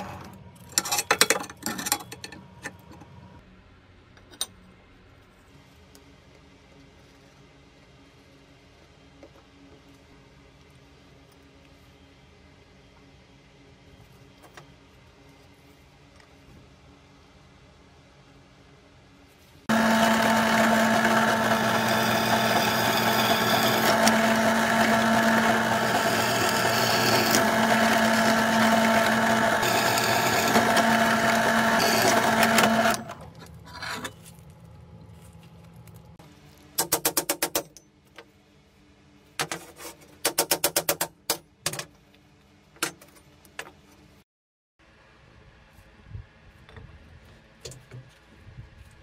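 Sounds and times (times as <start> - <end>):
drill press cutting metal: 19.7 - 33.3.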